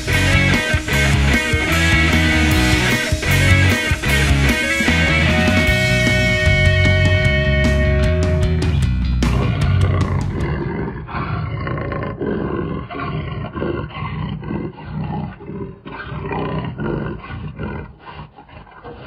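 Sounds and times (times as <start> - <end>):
rock music: 0.0 - 10.7
big cat roaring: 9.1 - 19.0.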